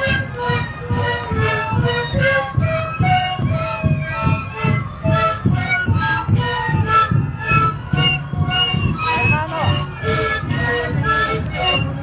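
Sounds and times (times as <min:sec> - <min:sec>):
panpipes playing: 0:00.0 - 0:12.0
steady drum beat: 0:00.0 - 0:12.0.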